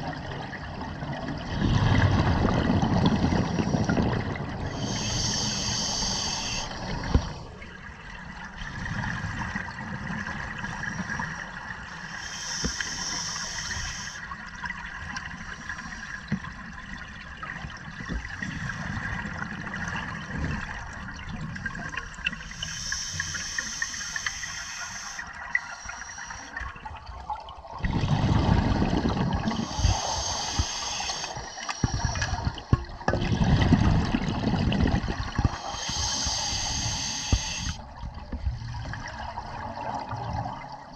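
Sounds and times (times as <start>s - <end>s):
gurgling rush of exhaled bubbles: 0.7s - 7.6s, 27.5s - 40.9s
regulator inhalation hiss: 4.7s - 7.0s, 11.9s - 14.2s, 22.4s - 26.6s, 29.5s - 32.6s, 35.5s - 37.8s.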